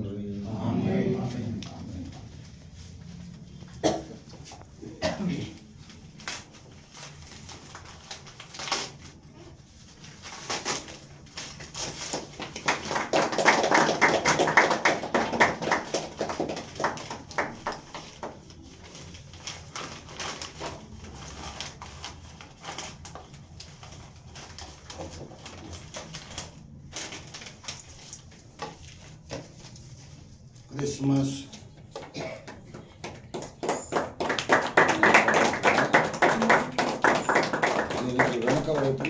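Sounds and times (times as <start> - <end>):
wrapping paper crinkling and tearing: 5.7 - 12.9, 15.8 - 30.5.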